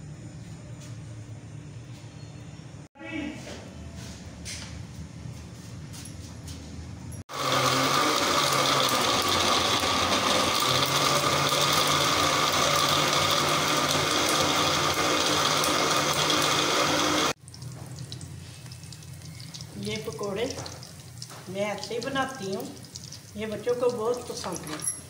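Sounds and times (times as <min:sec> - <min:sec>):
blender motor whine: 0:07.3 - 0:17.4.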